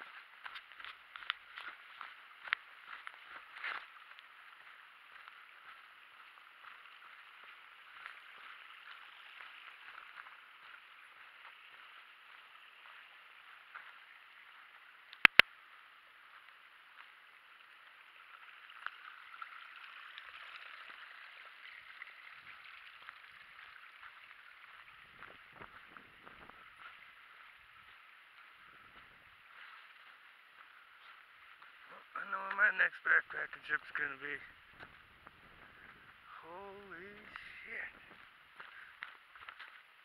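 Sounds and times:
footsteps on dirt trail: 0.0s - 40.0s
muffled hiss and rustle: 0.0s - 40.0s
sharp clicks: 15.1s - 15.5s.

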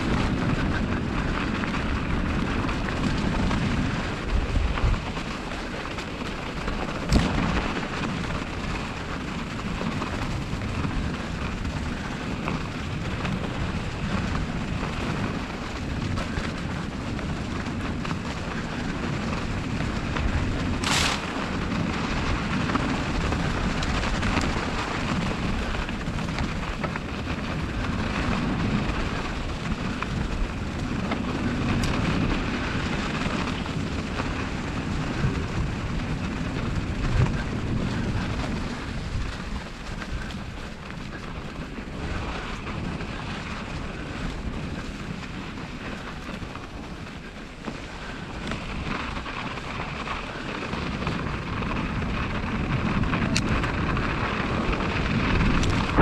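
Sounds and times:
bicycle tyres rolling through snow: 0.0s - 56.0s
wind buffeting microphone: 0.0s - 56.0s.

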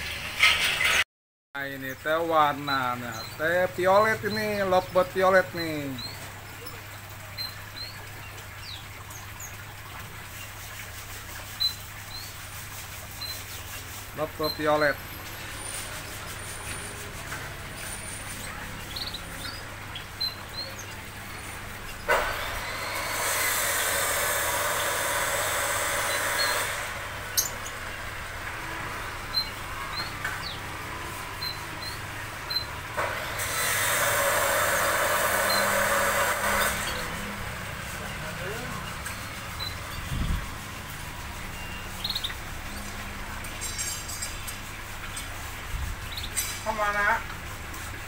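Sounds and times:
small birds chirping: 1.9s - 22.1s, 36.6s - 48.0s
loud hissing: 22.1s - 27.5s.

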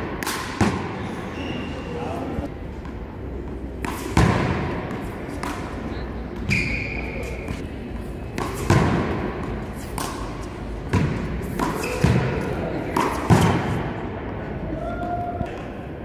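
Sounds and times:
ball slapping walls and court: 0.0s - 1.0s, 2.8s - 7.6s, 8.2s - 13.9s
shoe squeak: 1.0s - 2.3s, 6.4s - 7.6s, 11.6s - 12.5s.

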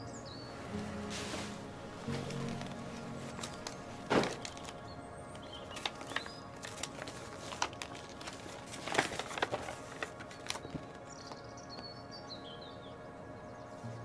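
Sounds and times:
quiet background music: 0.0s - 14.0s
paper rustling: 0.8s - 11.4s.

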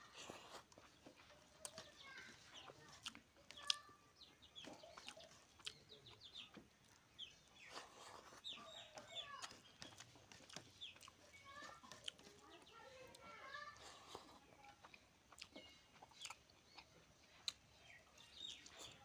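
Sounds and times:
chickens clucking softly: 0.1s - 19.0s.

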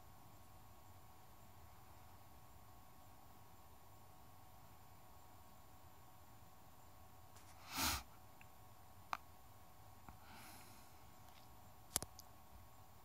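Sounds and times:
faint steady hiss: 0.0s - 13.0s
person sniffing: 7.4s - 8.1s, 10.2s - 10.9s
soft breath: 10.1s - 11.4s
faint sharp clicks: 11.2s - 12.3s.

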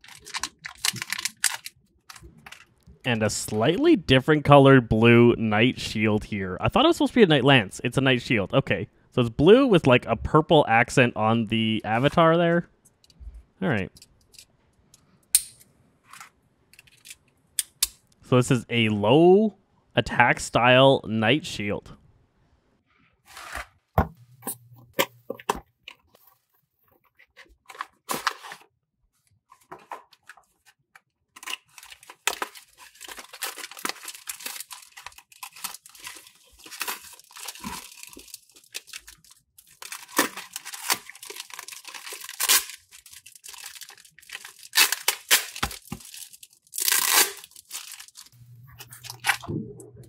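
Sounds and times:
foil bag tearing and crinkling: 0.0s - 2.7s, 31.4s - 48.4s
knife slitting cardboard box: 23.3s - 23.8s.

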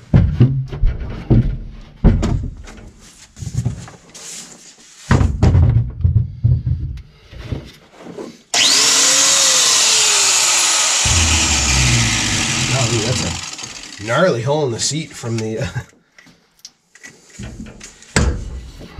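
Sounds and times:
knocks and clatter: 0.0s - 2.8s, 5.1s - 6.8s
power tool cutting sheet metal: 8.6s - 14.4s.

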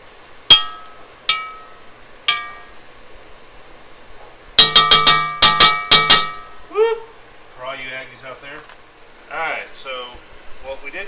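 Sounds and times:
metal spatula clanking on pot: 0.5s - 2.8s, 4.6s - 6.6s.

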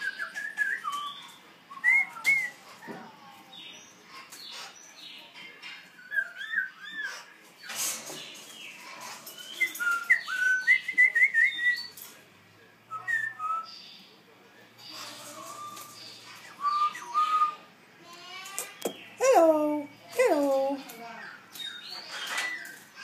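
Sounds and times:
songbird whistling song: 0.0s - 2.8s, 5.9s - 7.8s, 9.3s - 12.0s, 12.9s - 14.1s, 15.0s - 17.7s, 21.2s - 23.0s.

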